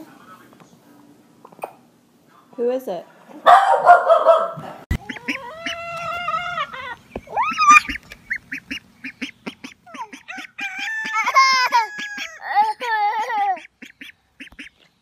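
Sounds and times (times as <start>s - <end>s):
young duck calling: 4.9s - 14.8s.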